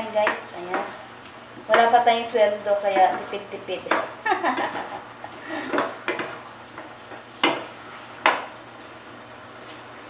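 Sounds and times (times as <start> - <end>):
spatula knocking against pan: 3.8 - 4.8, 5.7 - 8.5.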